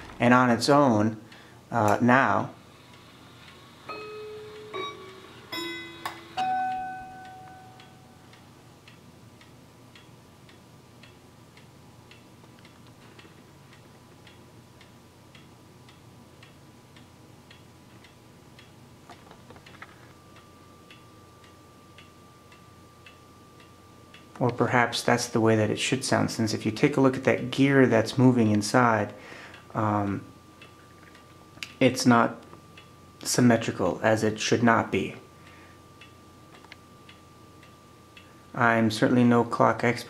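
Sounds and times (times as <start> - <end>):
clock ticking: 2.9 - 18.8, 20.2 - 24.9, 29.0 - 40.0
clock chime rods ringing: 3.5 - 8.5, 20.2 - 28.8, 29.4 - 40.0.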